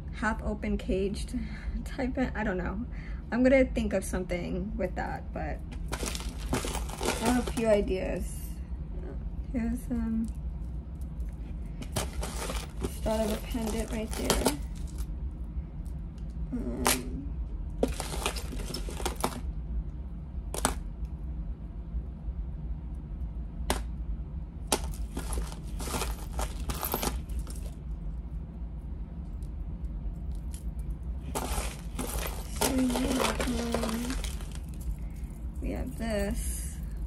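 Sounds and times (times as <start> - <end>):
steady low hum: 0.0 - 37.0
metal jewelry clinking: 5.9 - 7.9, 11.0 - 15.1, 24.7 - 27.8, 30.3 - 37.0.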